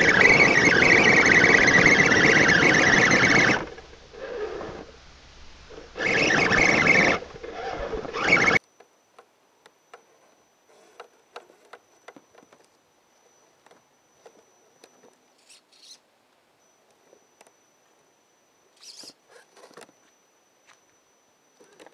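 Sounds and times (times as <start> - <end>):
rc truck motor whirring: 0.0 - 5.0, 5.7 - 8.6, 18.8 - 19.9.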